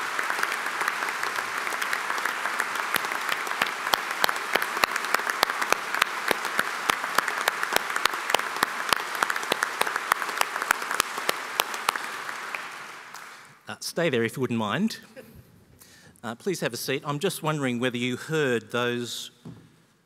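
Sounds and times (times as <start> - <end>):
close sharp hand claps: 0.0 - 13.6
crowd applause: 0.0 - 13.6.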